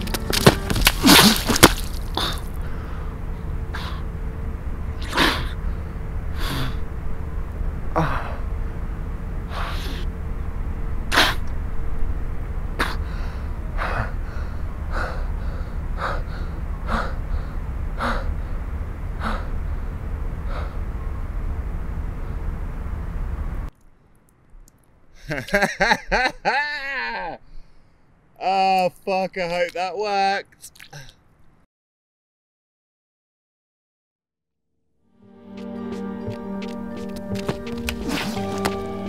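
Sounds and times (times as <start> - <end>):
man breathing hard: 2.1 - 4.1, 5.0 - 6.8, 7.9 - 8.5, 9.5 - 10.1, 12.8 - 20.9.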